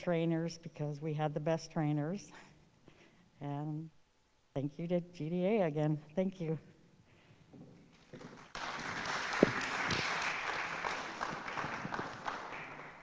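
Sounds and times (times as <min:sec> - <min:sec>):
audience applauding: 0:08.3 - 0:13.0.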